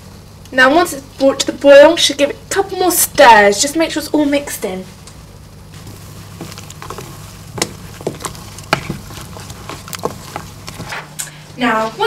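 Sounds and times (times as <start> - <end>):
steady low hum: 0.0 - 12.0
spoon stirring in a pan: 5.8 - 11.1.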